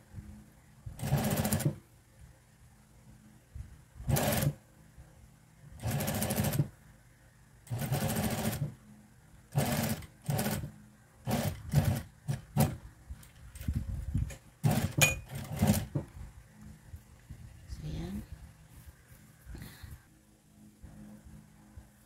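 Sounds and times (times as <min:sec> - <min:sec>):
sewing machine stitching: 0:01.0 - 0:01.8, 0:04.1 - 0:04.6, 0:05.8 - 0:06.7, 0:07.7 - 0:08.8, 0:09.5 - 0:12.8, 0:14.6 - 0:16.0.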